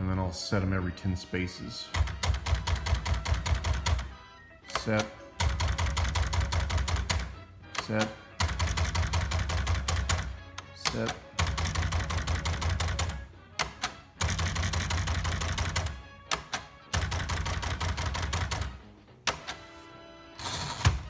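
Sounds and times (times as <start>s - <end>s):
typewriter keystrokes clattering: 1.9s - 4.1s, 4.7s - 19.6s.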